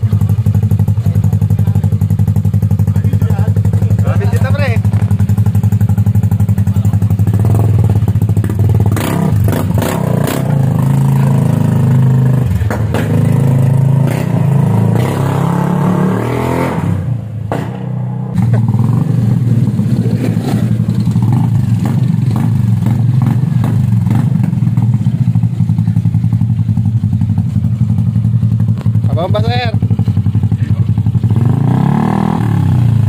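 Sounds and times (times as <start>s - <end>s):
scooter engine revving: 0.0s - 33.0s.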